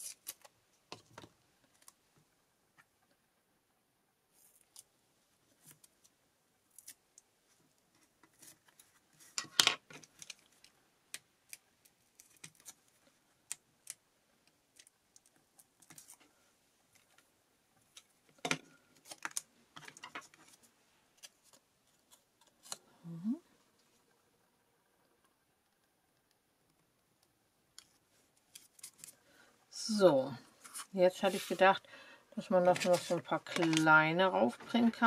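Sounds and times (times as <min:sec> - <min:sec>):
paper rustling: 0:32.6 - 0:34.0.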